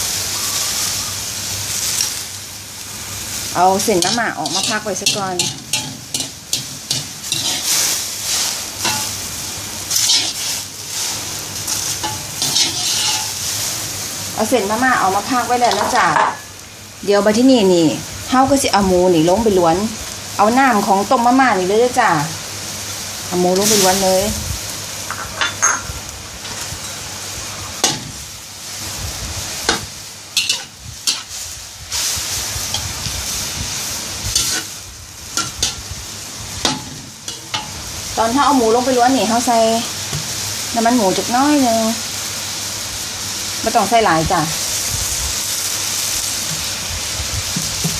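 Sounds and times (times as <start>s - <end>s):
wire skimmer scraping a steel wok: 3.4s - 13.7s, 15.4s - 16.6s, 25.1s - 27.1s, 27.7s - 40.4s, 47.5s - 47.9s
metal spatula scraping pan: 3.9s - 9.2s, 9.9s - 13.4s, 29.7s - 31.4s, 34.3s - 34.8s.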